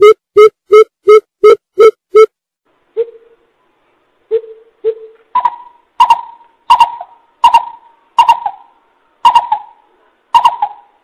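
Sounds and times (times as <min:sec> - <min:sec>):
bird hooting calls: 0:04.3 - 0:09.8, 0:10.4 - 0:11.0.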